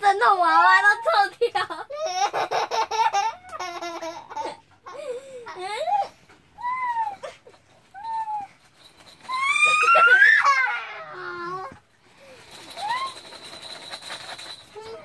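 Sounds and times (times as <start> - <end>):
boy laughing in squeals: 9.2 - 11.8.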